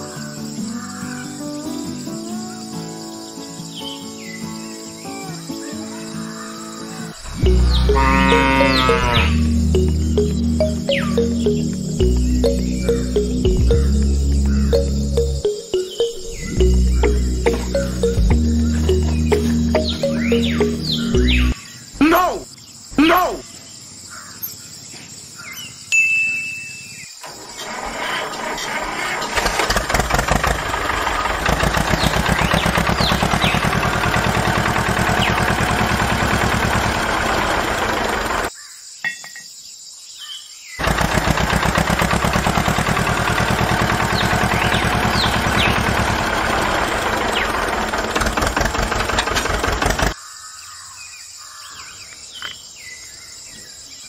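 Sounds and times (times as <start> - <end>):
faint bird chirps: 0.0 - 24.7
steady outdoor hiss: 0.0 - 54.0
tractor engine running: 7.2 - 21.6, 27.2 - 38.5, 40.8 - 50.2.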